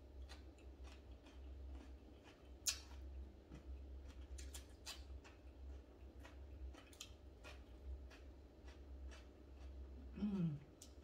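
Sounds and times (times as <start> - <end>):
low steady hum: 0.0 - 11.0
wet chewing mouth clicks: 0.2 - 11.0.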